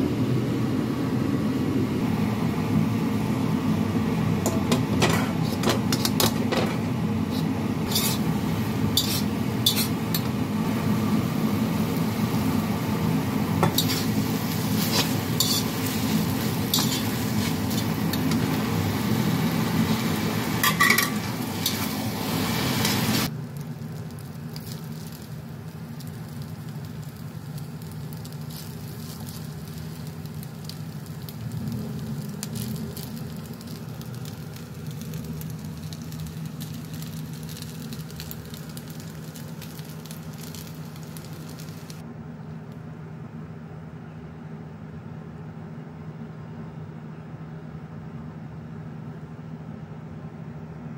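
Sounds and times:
noodles sizzling in a wok: 2.0s - 42.0s
metal utensil scraping a pan: 7.3s - 8.3s, 9.0s - 10.3s, 13.6s - 14.2s, 14.8s - 16.0s, 16.7s - 18.5s, 20.6s - 21.9s.

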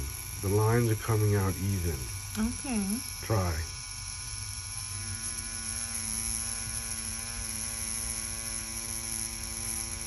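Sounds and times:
tattoo machine buzzing: 0.0s - 10.0s.

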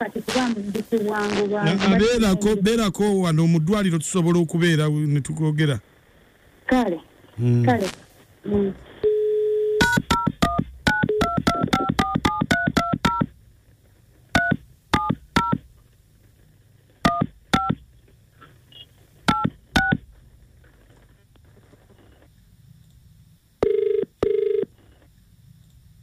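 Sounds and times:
phone keypad touch tones: 9.1s - 13.3s, 14.3s - 15.6s, 17.0s - 17.8s, 19.3s - 20.0s, 23.6s - 24.7s.

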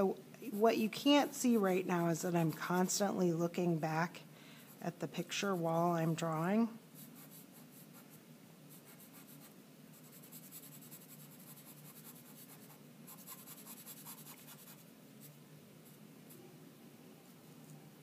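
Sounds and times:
chalk pencil scratching paper: 7.0s - 15.3s.

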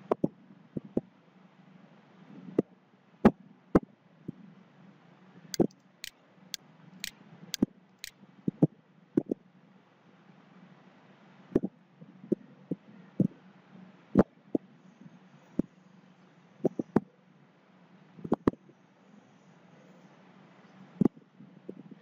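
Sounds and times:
computer mouse clicking: 5.6s - 5.8s.

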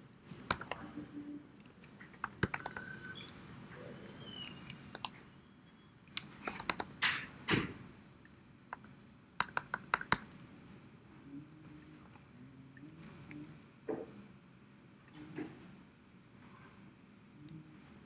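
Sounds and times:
keyboard key clicks: 0.3s - 0.8s, 2.1s - 3.0s, 6.1s - 7.0s, 8.7s - 10.4s.

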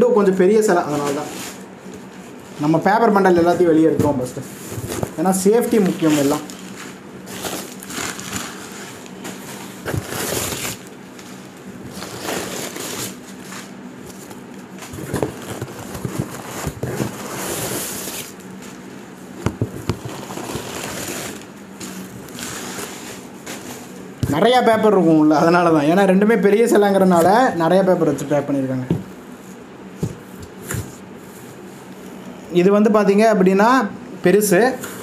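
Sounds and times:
newspaper rustling and crackling: 0.8s - 24.6s.

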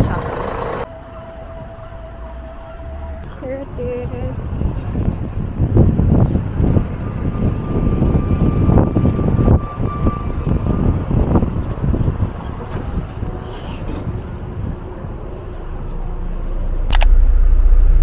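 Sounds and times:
bus engine rumble: 0.0s - 18.0s
high brake squeal: 4.8s - 12.1s.

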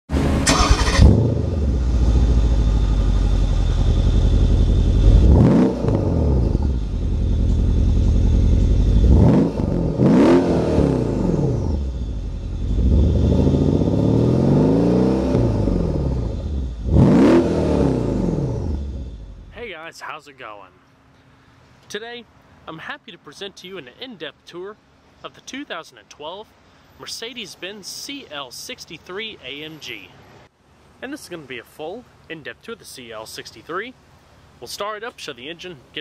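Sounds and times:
car engine revving: 0.1s - 19.6s.

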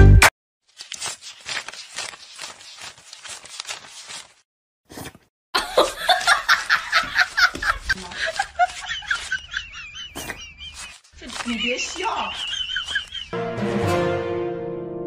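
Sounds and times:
banknotes flicked rustling: 0.7s - 4.4s, 6.1s - 13.3s
person laughing: 5.6s - 13.4s.

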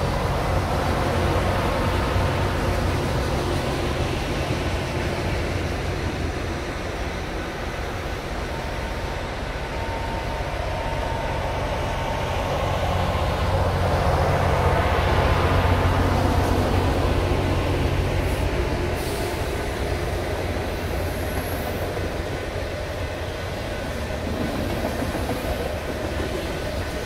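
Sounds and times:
train rumbling past on rails: 0.0s - 27.0s.

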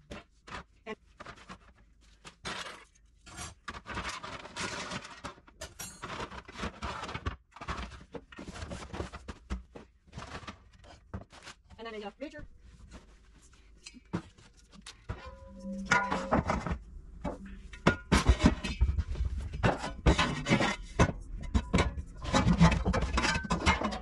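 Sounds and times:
boxes and packets rustling: 0.0s - 24.0s
trays clattering against shelf: 3.6s - 9.6s, 15.1s - 24.0s.

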